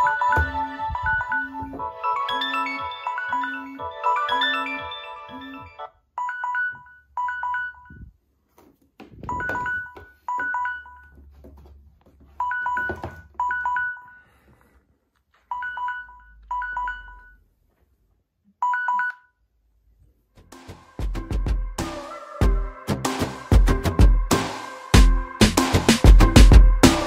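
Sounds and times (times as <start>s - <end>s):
phone timer beeps: 4.4s - 8.1s, 9.3s - 11.1s, 12.4s - 14.2s, 15.5s - 17.4s, 18.6s - 19.4s.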